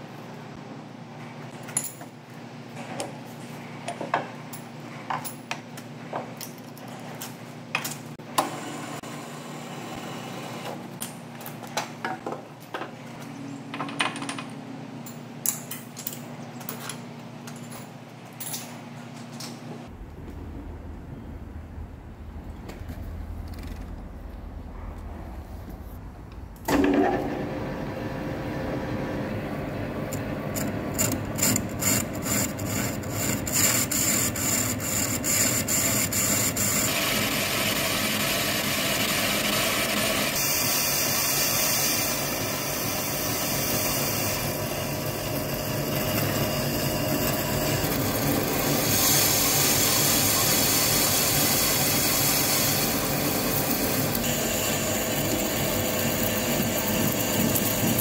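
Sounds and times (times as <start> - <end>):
lathe cutting steel: 29.7 - 58.0.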